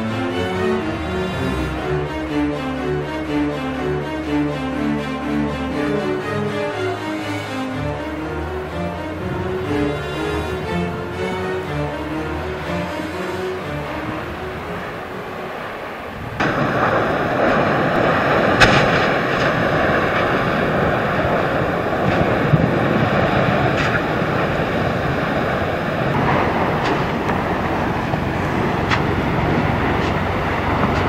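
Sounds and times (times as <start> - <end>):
lava fountain rushing rumble: 13.6 - 31.0
sharp cracks and bangs: 16.2 - 31.0.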